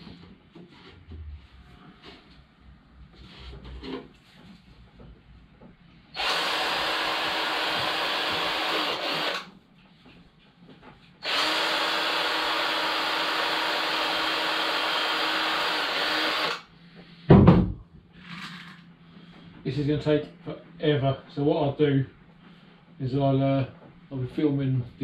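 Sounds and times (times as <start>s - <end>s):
cordless drill drilling wood: 6.2s - 9.5s, 11.2s - 16.6s.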